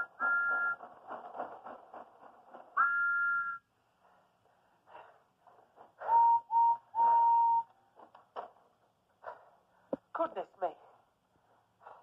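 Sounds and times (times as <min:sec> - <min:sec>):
steam engine two-note whistle: 0:00.0 - 0:00.8, 0:02.8 - 0:03.6, 0:06.0 - 0:07.7
steam engine whistle toots: 0:00.0 - 0:00.8, 0:02.8 - 0:03.7, 0:06.0 - 0:07.7.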